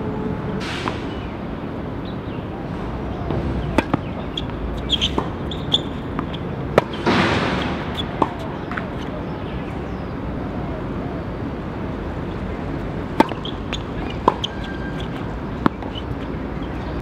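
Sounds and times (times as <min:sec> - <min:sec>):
outdoor background noise: 0:00.0 - 0:17.0
tennis balls struck by rackets: 0:03.3 - 0:09.8, 0:13.0 - 0:17.0.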